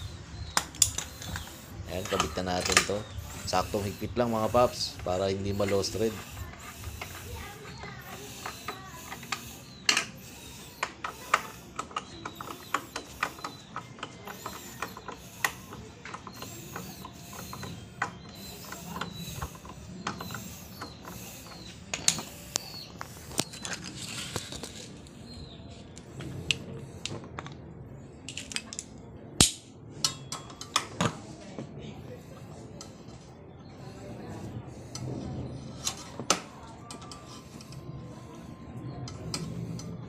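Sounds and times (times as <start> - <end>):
ratchet wrench clicking: 0.0 - 24.8, 32.1 - 35.1, 39.1 - 39.9.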